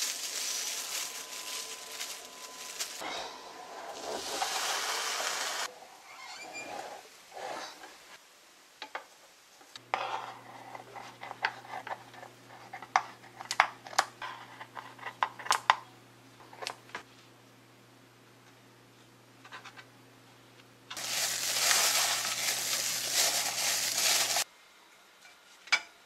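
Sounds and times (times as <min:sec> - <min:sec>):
low appliance hum: 0:00.0 - 0:05.9, 0:09.8 - 0:25.3
loud hiss: 0:04.0 - 0:05.7.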